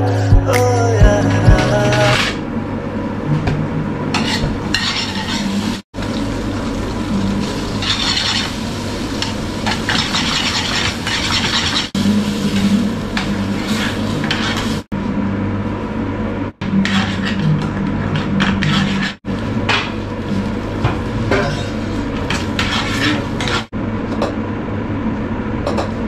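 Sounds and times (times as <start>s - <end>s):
spoon stirring and scraping pan: 4.2s - 5.7s, 7.8s - 8.6s, 9.7s - 14.8s, 16.7s - 19.2s, 21.3s - 23.7s
food sizzling in a frying pan: 4.9s - 14.9s.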